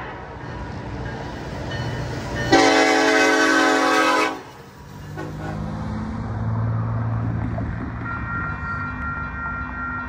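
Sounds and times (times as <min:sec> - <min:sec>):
train rumble: 0:00.0 - 0:10.0
locomotive horn blast: 0:02.5 - 0:05.7.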